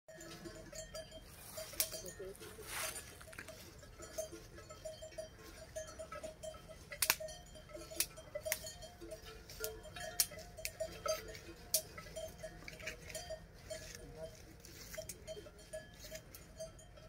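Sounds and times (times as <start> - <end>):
cowbells tinkling: 0.1 - 17.0.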